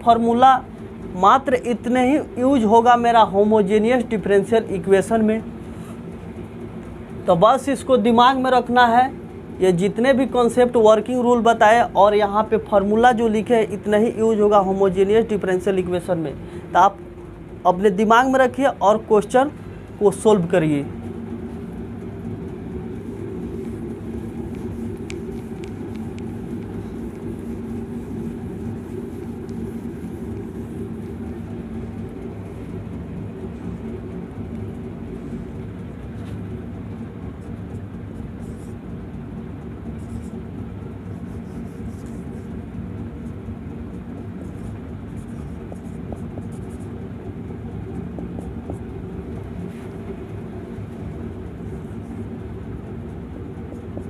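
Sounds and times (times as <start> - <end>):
low mechanical hum: 0.0 - 54.0.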